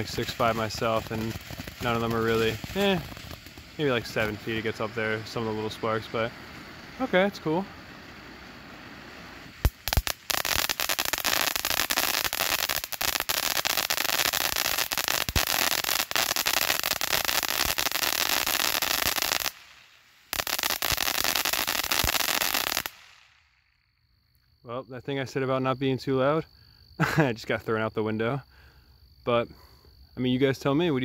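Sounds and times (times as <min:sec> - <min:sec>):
firework fountain hissing: 0:00.0 - 0:23.5
firework crackling: 0:00.0 - 0:23.6.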